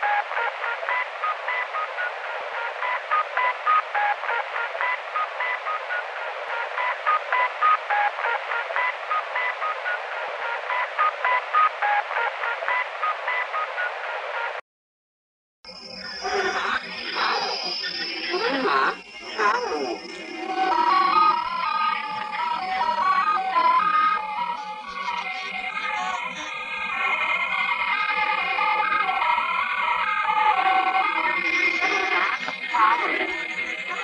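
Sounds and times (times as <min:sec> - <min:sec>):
radio static hiss: 0:00.0 - 0:14.6, 0:16.0 - 0:23.2, 0:30.7 - 0:34.0.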